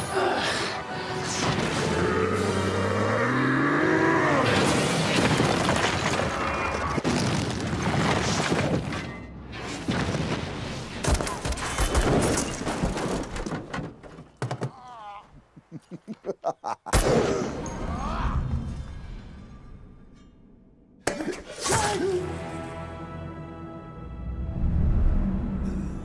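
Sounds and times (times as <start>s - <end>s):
orchestral score: 0.0s - 4.8s, 21.5s - 26.0s
shattering debris: 4.4s - 9.2s, 9.8s - 14.8s.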